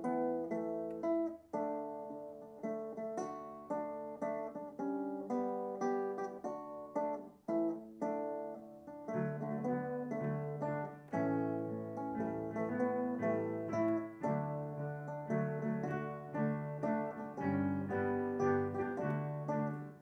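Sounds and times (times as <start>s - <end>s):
guitar playing plucked melody: 0.0s - 20.0s.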